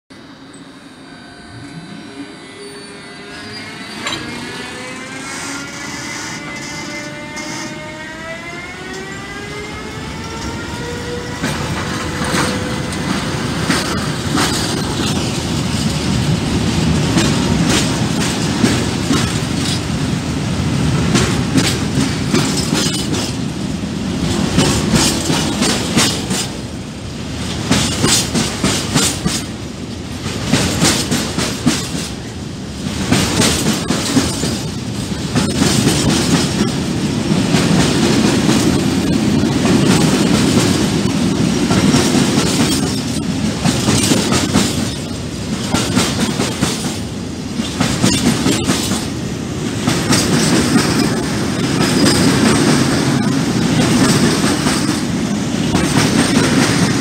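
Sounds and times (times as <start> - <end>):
freight train rumbling past: 0.0 - 57.0
electric locomotive whining: 0.1 - 57.0
wheels clacking on rail joints: 10.2 - 20.2, 21.0 - 23.6, 24.2 - 26.8, 27.4 - 57.0.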